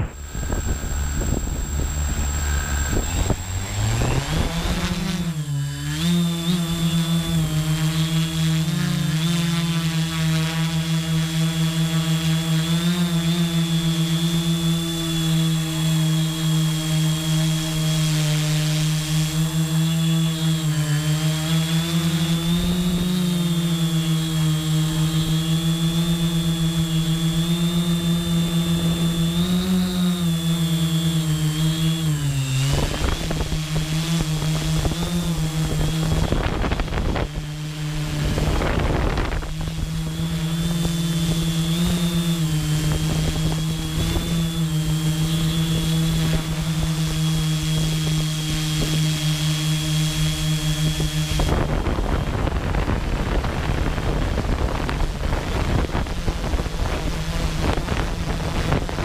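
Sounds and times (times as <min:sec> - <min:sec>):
wind buffeting microphone: 0:00.0 - 0:07.5, 0:32.0 - 0:49.0, 0:50.9 - 0:59.0
thin high whine: 0:00.0 - 0:53.4
drone propellers humming: 0:00.0 - 0:59.0.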